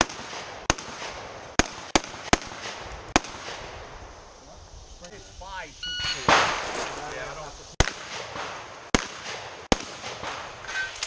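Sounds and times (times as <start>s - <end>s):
shotgun shots with echo: 0.0s - 3.7s, 6.3s - 7.0s, 7.8s - 10.8s.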